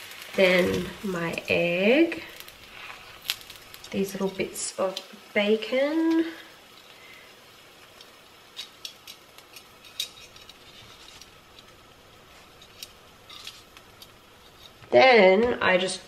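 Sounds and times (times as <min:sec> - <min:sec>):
bread sizzling in a pan: 0:00.0 - 0:16.0.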